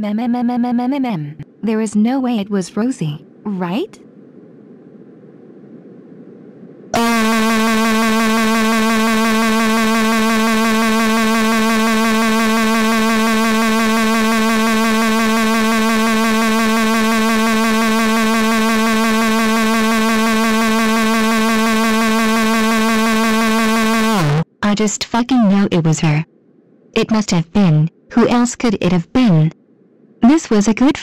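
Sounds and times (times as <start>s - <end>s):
synthetic voice humming: 7.0s - 24.4s.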